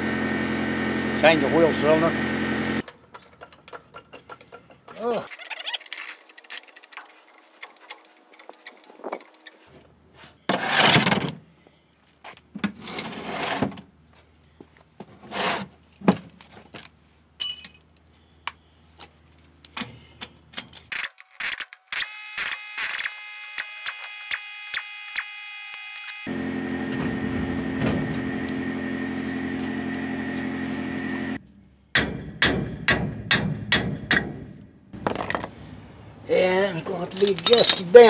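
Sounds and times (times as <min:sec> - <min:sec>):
metal tools clinking: 0:02.8 - 0:09.6, 0:17.4 - 0:17.9, 0:36.8 - 0:38.0
impact wrench rattling: 0:37.1 - 0:38.0.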